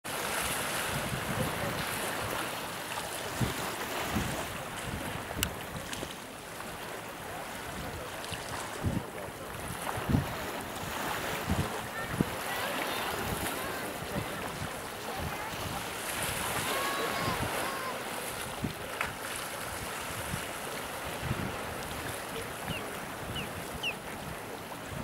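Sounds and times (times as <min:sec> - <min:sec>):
wind: 0:00.0 - 0:25.0
sea surf: 0:00.1 - 0:25.0
wind thumping on microphone: 0:03.3 - 0:06.1, 0:08.8 - 0:10.5, 0:11.1 - 0:12.4, 0:21.1 - 0:25.0.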